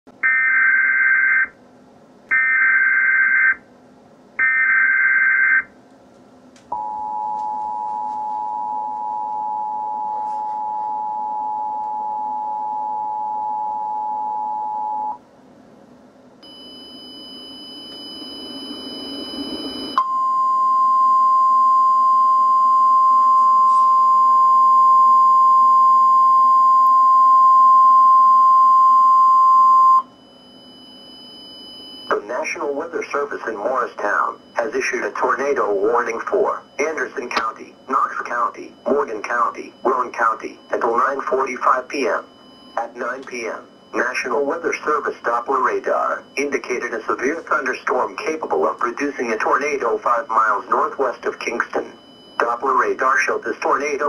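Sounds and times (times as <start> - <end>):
steady warning tone: 6.7 - 15.2, 16.4 - 54.0
two-tone attention signal: 16.4 - 32.2.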